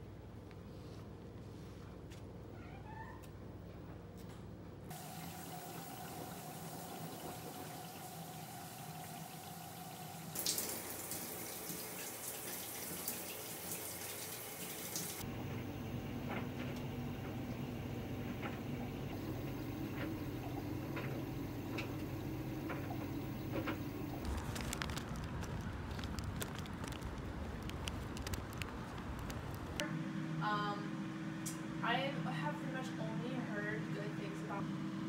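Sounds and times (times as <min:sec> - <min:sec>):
outdoor background noise: 0:00.0 - 0:30.7
shower running: 0:04.9 - 0:29.4
clothes dryer humming: 0:04.9 - 0:35.0.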